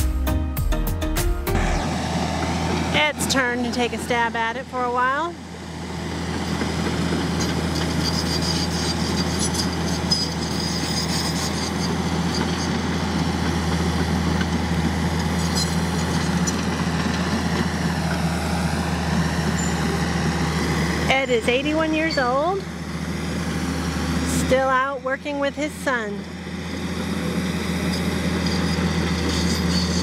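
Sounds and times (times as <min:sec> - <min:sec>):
bulldozer diesel engine running: 0:00.0 - 0:30.0
metallic clinking and squeaking: 0:07.4 - 0:12.8, 0:15.4 - 0:16.7, 0:21.1 - 0:22.6, 0:27.9 - 0:30.0.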